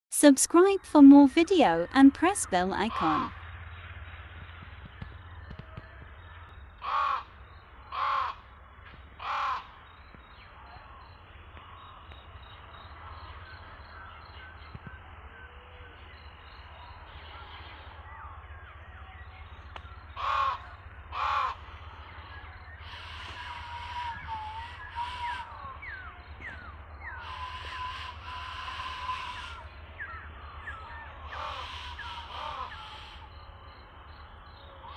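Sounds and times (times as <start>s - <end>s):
steady low hum: 0.2s - 34.9s
small birds chirping: 1.0s - 34.9s
crow cawing: 6.8s - 8.5s, 9.2s - 9.8s, 20.2s - 21.9s, 22.8s - 25.7s, 27.1s - 29.8s, 31.0s - 33.3s.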